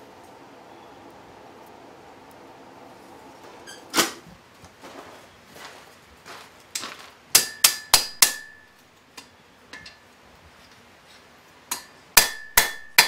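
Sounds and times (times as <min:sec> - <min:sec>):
hammer ringing on hot metal: 0:07.4 - 0:08.8, 0:11.7 - 0:13.0.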